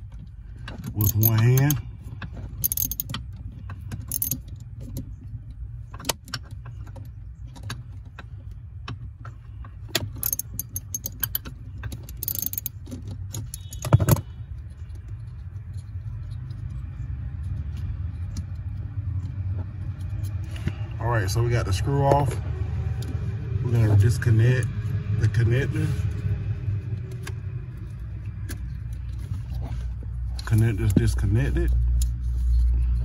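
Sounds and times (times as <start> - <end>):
hand tool clicking on metal: 1.0 - 1.8, 2.6 - 3.2, 4.1 - 4.4, 10.2 - 11.4, 12.1 - 12.7.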